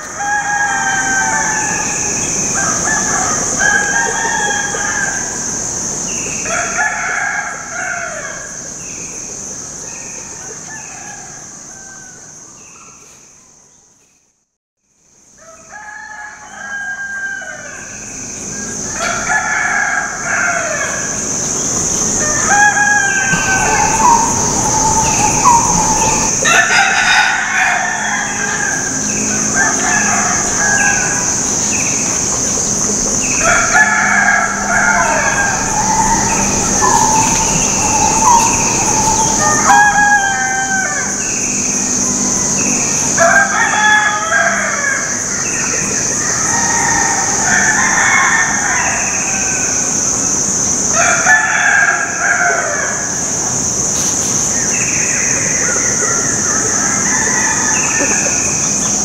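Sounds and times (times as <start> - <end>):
chickens clucking and crowing: 0.0 - 7.7, 22.4 - 28.7, 33.2 - 41.2
high-pitched drone: 23.3 - 27.4, 32.9 - 41.4.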